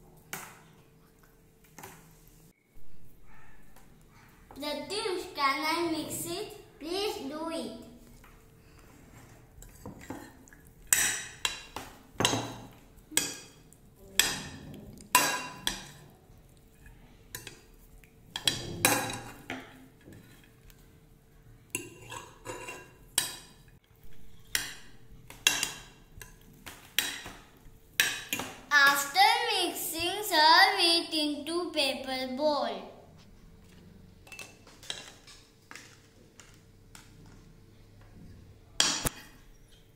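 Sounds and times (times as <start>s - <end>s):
spoon clinking and scraping glass bowl: 21.8s - 23.6s.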